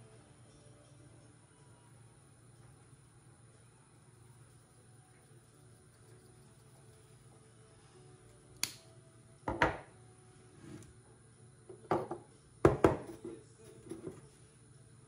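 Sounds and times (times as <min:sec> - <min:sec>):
kitchenware knocking on wood: 0:09.5 - 0:09.9, 0:11.8 - 0:13.2.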